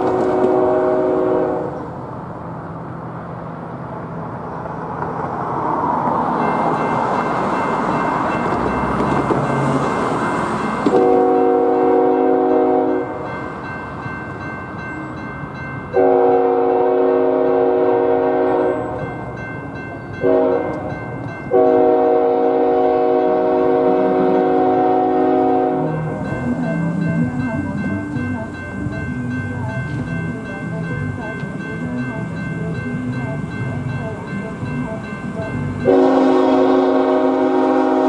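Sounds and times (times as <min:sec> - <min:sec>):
train horn blasts: 0:00.0 - 0:01.9, 0:10.9 - 0:13.2, 0:16.0 - 0:19.1, 0:20.2 - 0:20.9, 0:21.5 - 0:26.1, 0:34.9 - 0:38.0
electronic crossing bell ringing: 0:06.3 - 0:17.1, 0:18.0 - 0:36.8.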